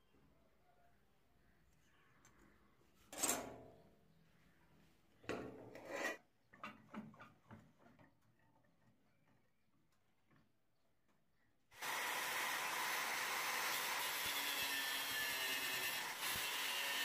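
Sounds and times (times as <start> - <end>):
metal scraping and knocking: 5.3 - 7.3.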